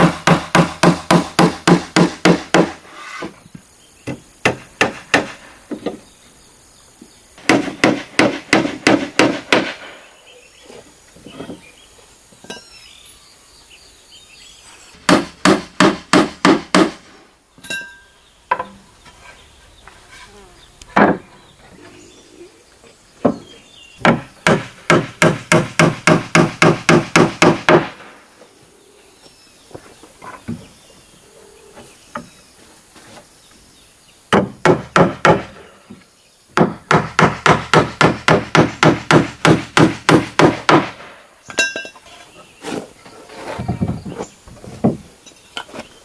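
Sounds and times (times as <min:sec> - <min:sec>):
hammer driving nails into wood: 0:07.4 - 0:09.9, 0:24.0 - 0:28.0.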